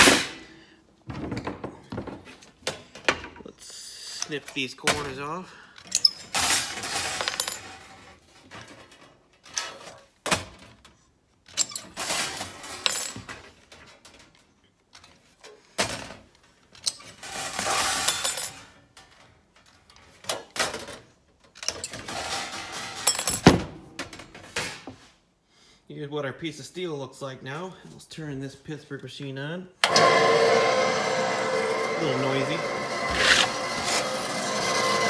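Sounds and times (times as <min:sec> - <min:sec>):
metal pieces clinking down: 0:05.9 - 0:07.8, 0:11.6 - 0:13.4, 0:16.8 - 0:18.7, 0:21.6 - 0:23.5
metal sheet rattling and scraping: 0:06.3 - 0:09.1, 0:17.1 - 0:18.6, 0:21.8 - 0:23.1.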